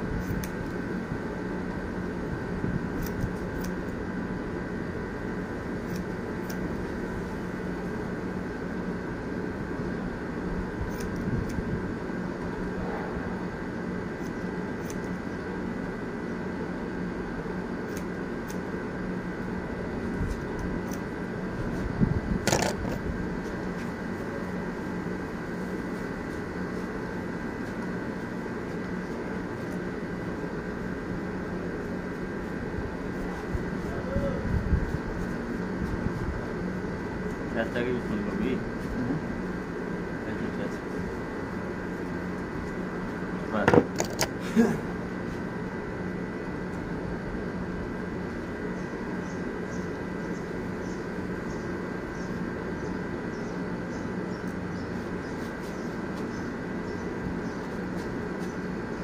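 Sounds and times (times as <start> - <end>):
steady mechanical hum: 0.0 - 59.0
scissors snipping hair: 0.2 - 0.8, 2.9 - 3.9, 5.8 - 6.7, 10.8 - 11.6, 14.2 - 15.2, 17.8 - 18.7, 20.3 - 21.1
sharp click and clatter: 22.4 - 23.0.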